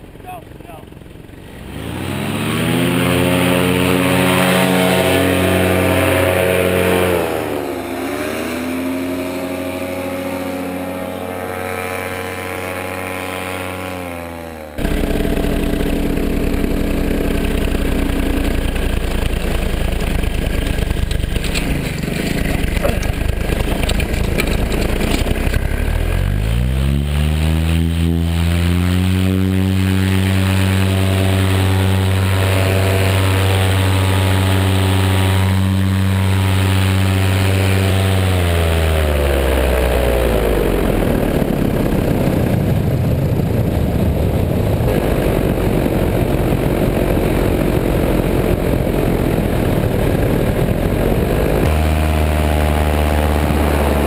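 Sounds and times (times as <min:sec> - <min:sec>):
paramotor engine and propeller: 0:00.0 - 0:54.0
rushing wind: 0:14.7 - 0:54.0.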